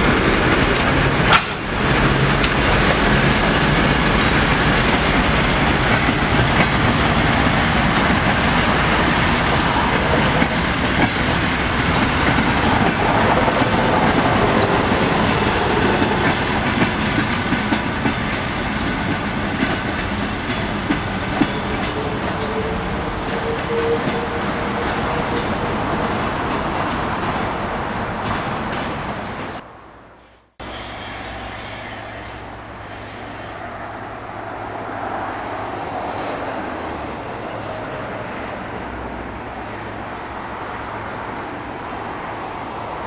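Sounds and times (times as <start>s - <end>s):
train wheels clattering over rail joints: 0.0s - 22.6s.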